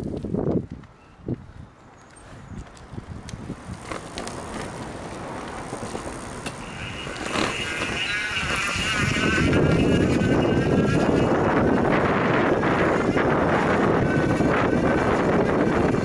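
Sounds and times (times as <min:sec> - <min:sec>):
tyre and wind noise: 0:00.0 - 0:16.0
electric motor whine: 0:03.7 - 0:16.0.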